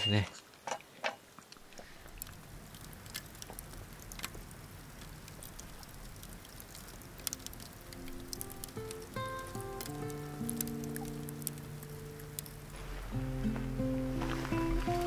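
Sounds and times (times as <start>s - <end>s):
campfire crackling: 0.1s - 15.0s
soft music: 7.2s - 15.0s.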